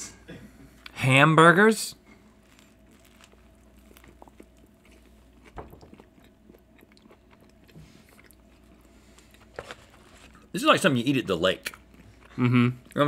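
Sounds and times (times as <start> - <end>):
biting and chewing sandwich: 2.2 - 10.5.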